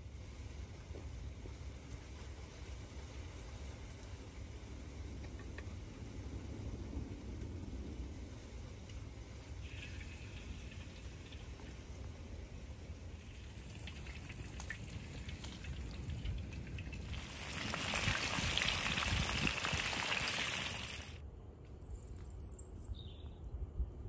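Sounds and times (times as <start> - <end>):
chicken sizzling in hot oil: 9.5 - 12.0, 13.0 - 21.2
bird chirping: 21.8 - 23.4.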